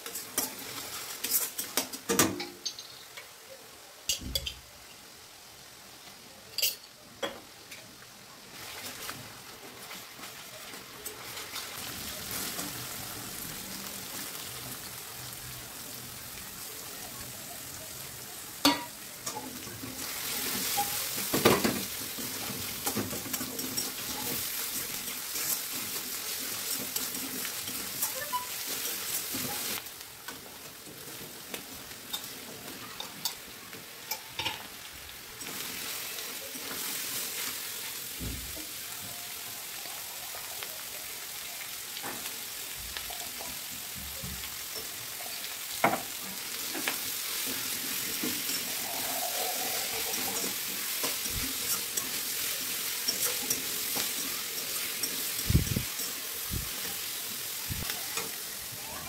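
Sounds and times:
food sizzling in a wok: 0.0s - 59.0s
metal spatula scraping a pan: 20.0s - 29.8s, 47.3s - 55.4s.

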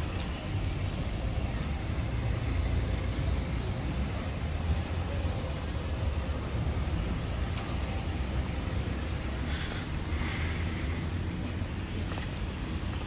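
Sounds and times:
street traffic rumble: 0.0s - 13.0s.

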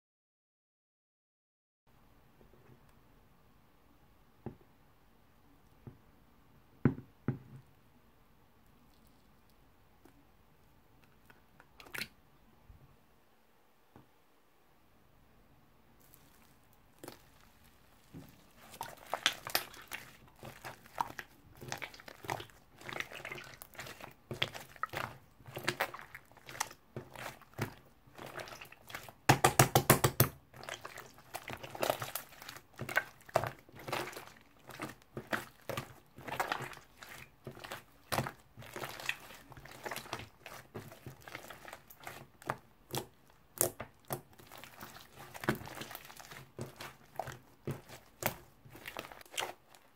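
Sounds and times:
slime squished by hand: 16.0s - 49.9s.

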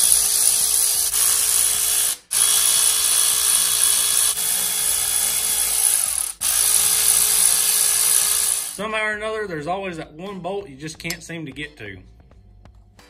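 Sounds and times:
electric ratchet whirring: 0.0s - 8.8s.

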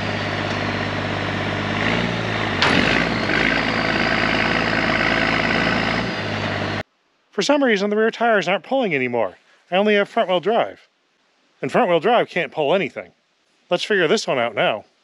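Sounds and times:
truck engine running under load: 0.0s - 6.8s
sharp metal clunk: 2.6s - 3.0s.

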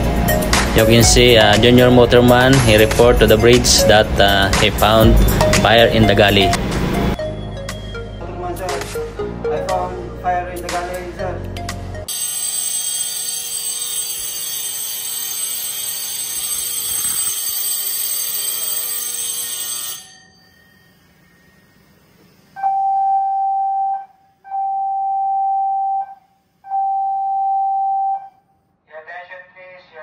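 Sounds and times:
steady alarm tone: 0.0s - 8.3s, 12.1s - 28.5s
fire alarm bell ringing: 12.1s - 28.4s.

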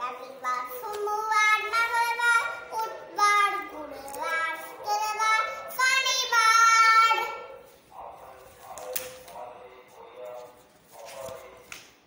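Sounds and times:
girl singing: 0.0s - 7.6s.

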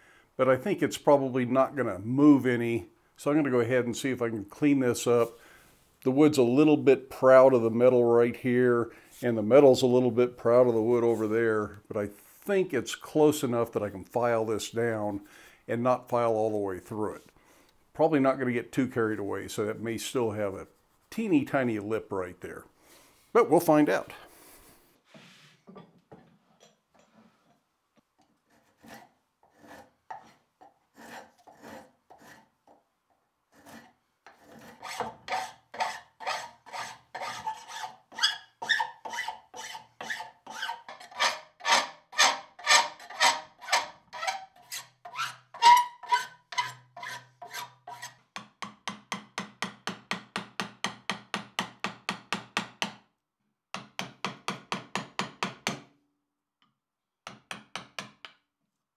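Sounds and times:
hand file filing wood and metal: 28.4s - 32.8s, 33.5s - 48.3s.

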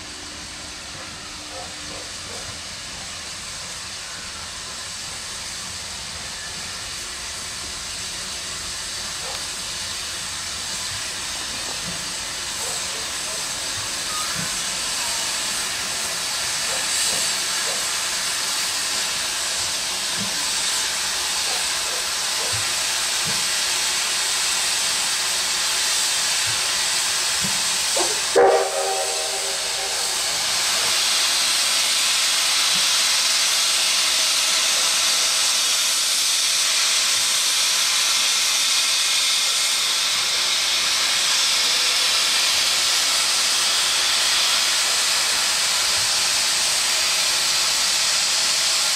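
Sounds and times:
steam locomotive hissing: 0.0s - 48.9s
train whistle toot: 28.0s - 31.0s.

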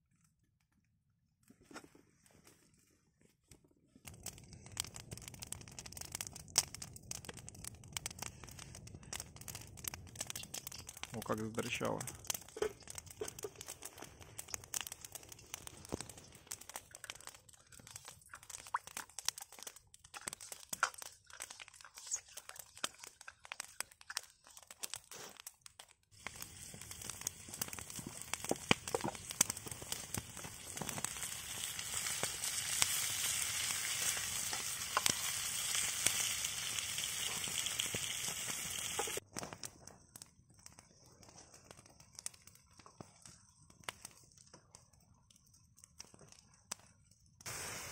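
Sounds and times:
fire crackles and pops: 3.4s - 47.9s
onions sizzling in a wok: 26.1s - 39.2s, 47.4s - 47.9s.

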